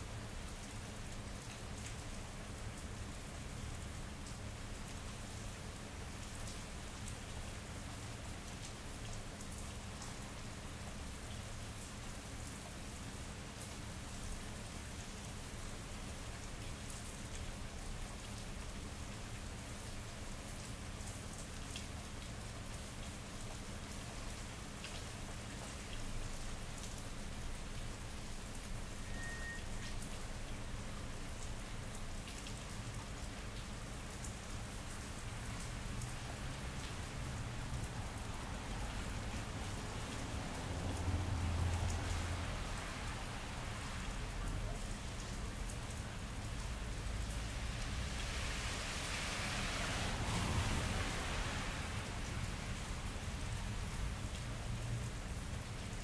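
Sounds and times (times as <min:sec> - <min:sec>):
rain on wet pavement: 0:00.0 - 0:56.0.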